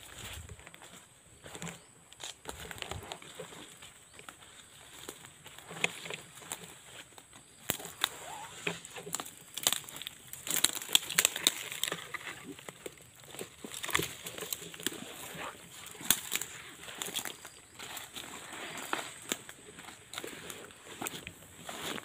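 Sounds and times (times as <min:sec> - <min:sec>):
footsteps crunching through leaves: 0:00.0 - 0:22.0
sticks cracking underfoot: 0:04.2 - 0:21.3.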